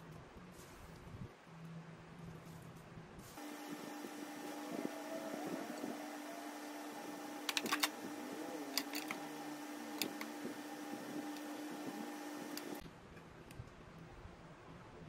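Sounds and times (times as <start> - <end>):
steady hum: 3.3 - 12.8.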